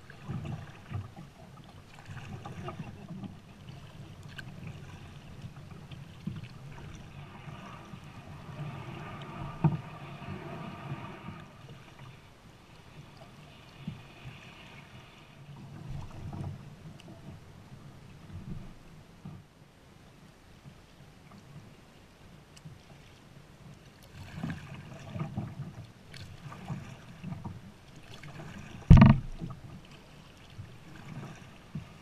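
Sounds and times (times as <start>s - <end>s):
paddle-stroke splashes: 0.0s - 32.0s
water lapping along kayak hull: 0.0s - 32.0s
sharp knock: 28.9s - 29.3s.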